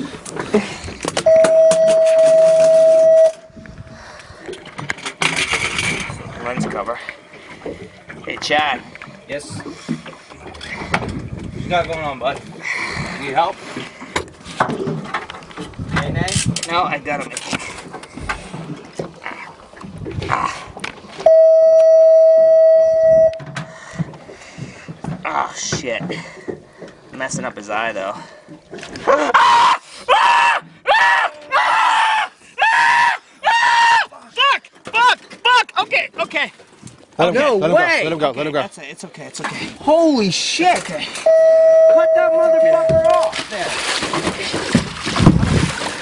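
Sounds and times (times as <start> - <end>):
loud electronic beep: 1.3 - 3.5, 21.3 - 23.5, 41.3 - 43.2
loud steady tone: 1.3 - 3.6, 21.3 - 23.6, 41.3 - 43.3
knocks and clatter: 42.9 - 45.9.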